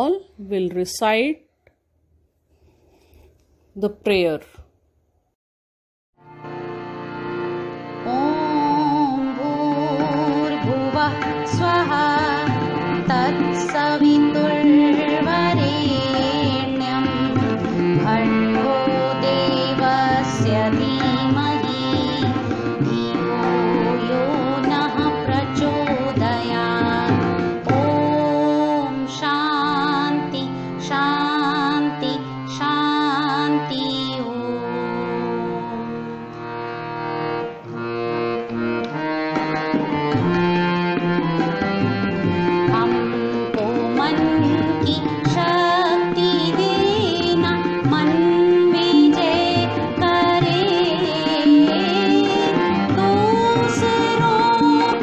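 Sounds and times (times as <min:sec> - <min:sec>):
instrumental and percussion accompaniment: 0:06.4 - 0:32.0, 0:36.6 - 0:55.0
person singing ornamented melody: 0:08.0 - 0:12.4, 0:42.7 - 0:55.0.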